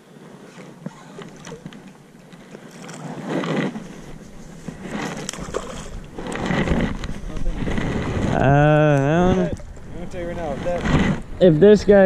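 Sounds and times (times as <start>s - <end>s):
fish thrashing and splashing: 2.5s - 8.3s.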